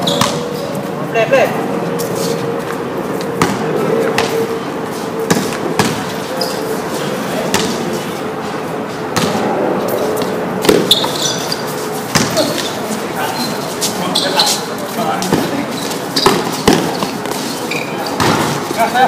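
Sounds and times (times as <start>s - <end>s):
steady hum: 0.0s - 19.0s
basketball bouncing on tiles: 12.1s - 12.4s.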